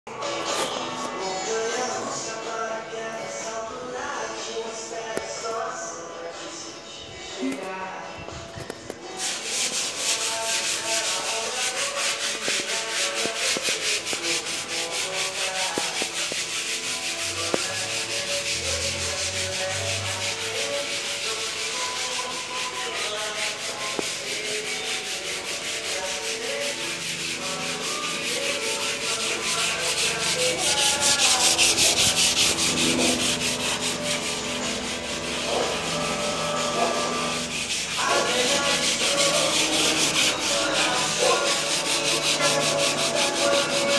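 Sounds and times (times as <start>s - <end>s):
sandpaper rasping on wall: 9.1s - 43.9s.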